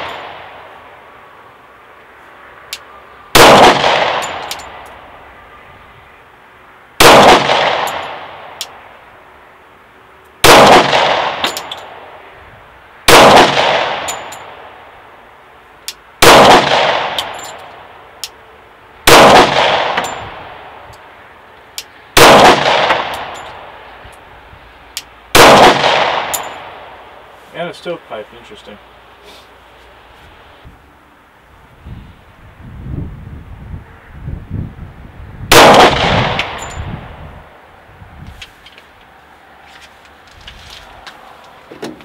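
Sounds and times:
pistol shots ringing out: 3.3s - 4.6s, 7.0s - 8.4s, 10.4s - 11.8s, 13.1s - 14.6s, 16.2s - 17.5s, 19.1s - 20.4s, 22.2s - 23.4s, 25.3s - 26.8s, 35.5s - 36.8s.

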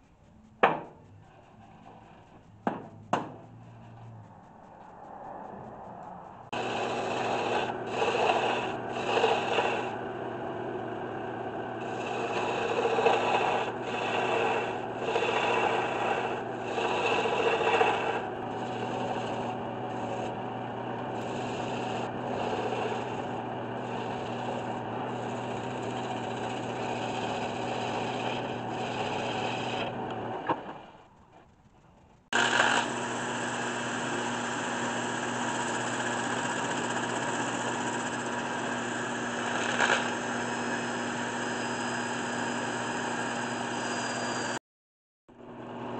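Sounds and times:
wood lathe humming: 6.5s - 30.4s, 32.4s - 44.6s
gouge cutting spinning wood: 6.5s - 30.9s, 32.4s - 44.6s.

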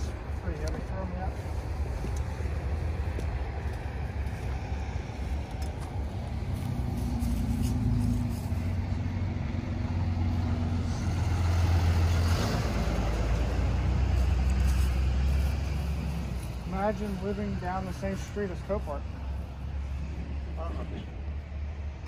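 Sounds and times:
rush of road noise: 0.0s - 22.0s
vehicle engine humming: 0.0s - 22.0s.

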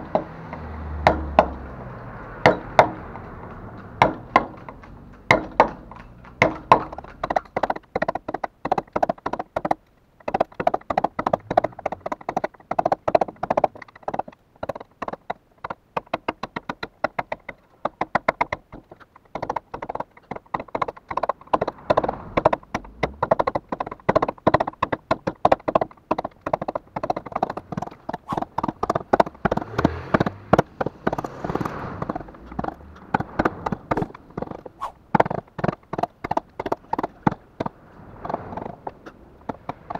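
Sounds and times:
mallet striking chisel into wood: 1.0s - 1.6s, 4.0s - 10.6s.

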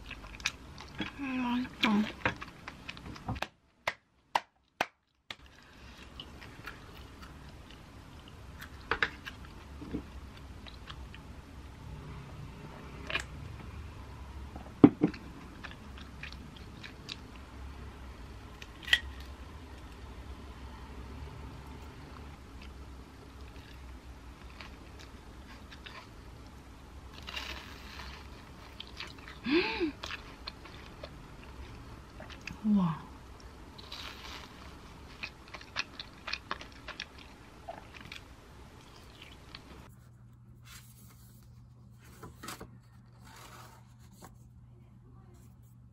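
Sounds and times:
person chewing crunchy food: 0.0s - 1.2s, 15.1s - 17.4s, 22.6s - 26.2s, 27.1s - 32.6s, 33.3s - 39.9s
crunchy bites and chewing: 33.8s - 39.8s.

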